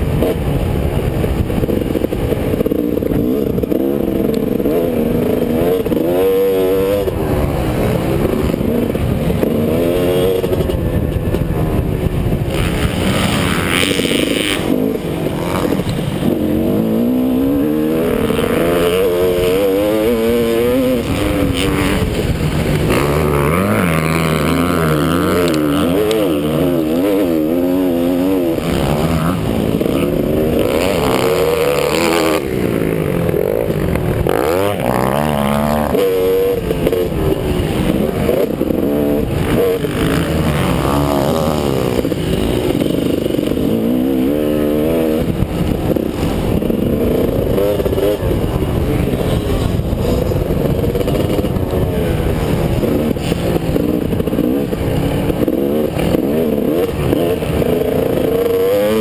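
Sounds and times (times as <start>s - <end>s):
motocross bike engine revving: 0.0s - 59.0s
wind rumble on microphone: 0.0s - 59.0s.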